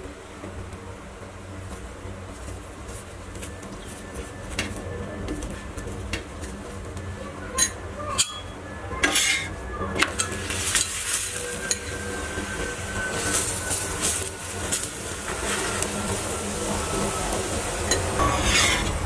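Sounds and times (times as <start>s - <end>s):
ghee sizzling: 1.1s - 19.0s
metal utensils scraping on iron pan: 7.6s - 12.0s, 17.9s - 19.0s.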